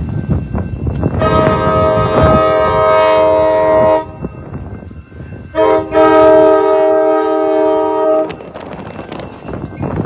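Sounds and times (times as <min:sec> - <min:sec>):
low rumble of train: 0:00.0 - 0:10.0
train horn blasts: 0:01.1 - 0:04.3, 0:05.5 - 0:08.6.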